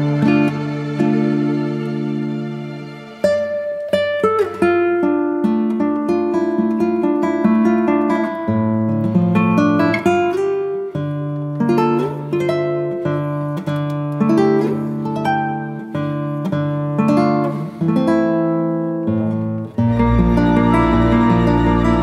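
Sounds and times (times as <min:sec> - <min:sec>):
acoustic guitar chords: 0:00.0 - 0:22.0.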